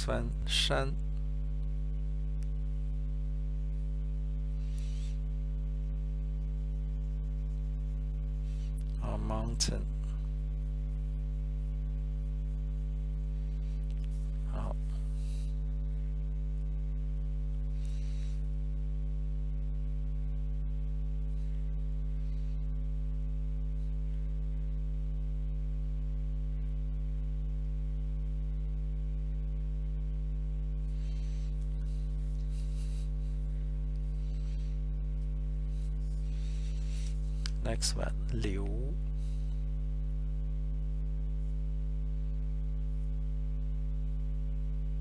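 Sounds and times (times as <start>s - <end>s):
electrical mains hum: 0.0s - 45.0s.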